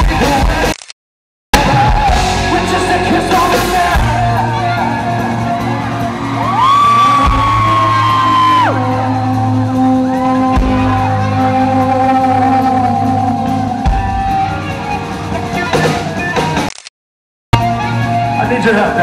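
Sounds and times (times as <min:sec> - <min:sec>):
live rock band playing: 0:00.0 - 0:00.8, 0:01.6 - 0:16.8, 0:17.6 - 0:19.0.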